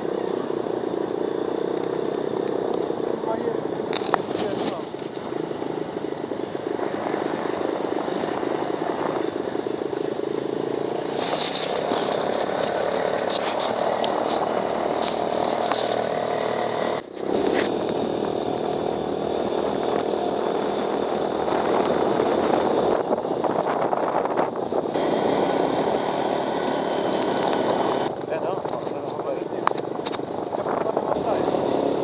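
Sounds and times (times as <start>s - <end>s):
buggy engine running: 0.0s - 32.0s
wind noise: 6.1s - 9.9s, 17.0s - 25.2s, 27.5s - 32.0s.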